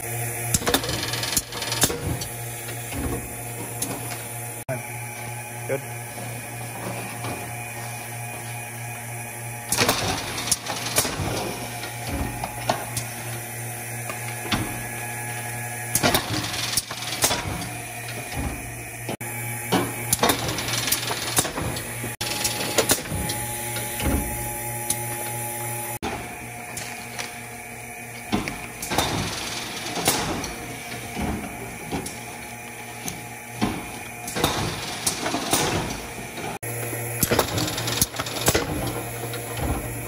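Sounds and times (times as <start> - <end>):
low motor hum: 0.0 - 16.7, 17.3 - 34.9, 35.6 - 40.0
machine clacking: 15.9 - 18.4, 28.3 - 32.3, 33.7 - 36.6, 37.2 - 40.0.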